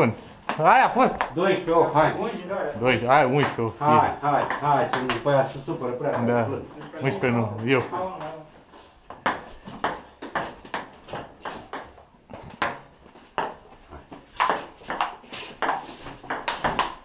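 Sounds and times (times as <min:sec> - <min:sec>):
ping-pong ball clicking: 0:14.4 - 0:17.0.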